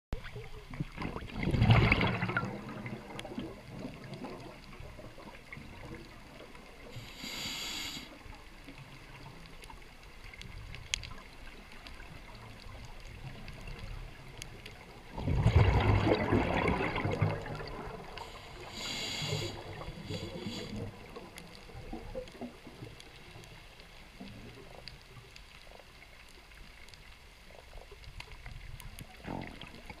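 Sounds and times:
low underwater hiss: 0.2s - 30.0s
high hiss of inhalation: 7.0s - 8.2s, 18.2s - 20.8s.

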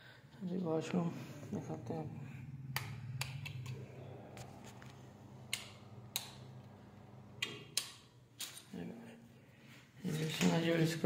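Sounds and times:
low steady hum: 0.2s - 10.0s
sharp clicks and taps: 2.7s - 3.8s, 5.5s - 6.5s, 7.4s - 8.6s.

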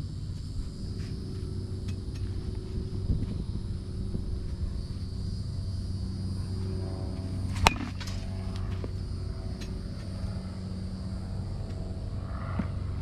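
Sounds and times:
steady low hum: 0.0s - 13.0s
bat hitting a ball: 7.5s - 8.2s.

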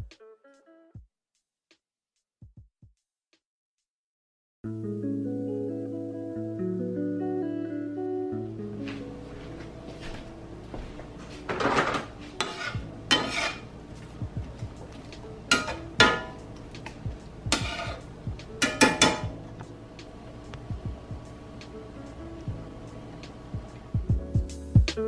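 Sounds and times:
soft background music: 4.7s - 25.0s
pots and dishes clattering: 11.5s - 13.7s, 15.4s - 18.0s, 18.6s - 19.4s.

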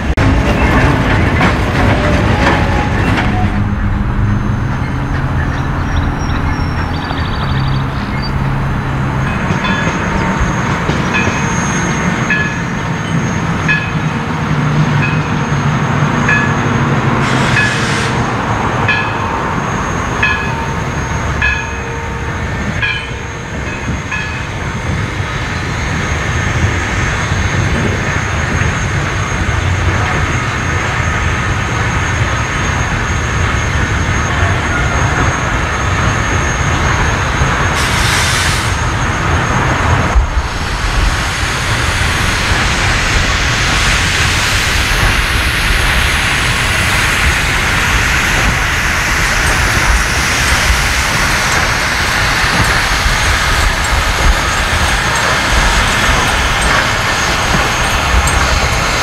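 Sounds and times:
steam locomotive running: 0.0s - 59.0s
steam hiss burst: 17.2s - 18.4s, 37.7s - 39.1s, 40.2s - 59.0s.

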